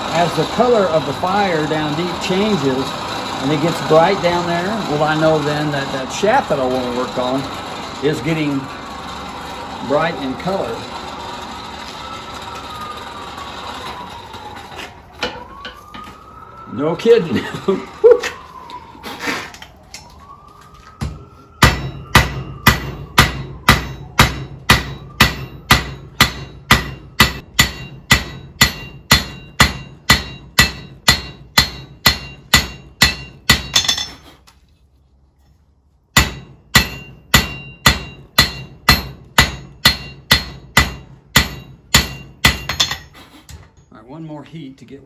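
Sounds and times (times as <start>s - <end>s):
hammer striking metal on anvil: 21.6s - 34.2s, 36.2s - 43.1s.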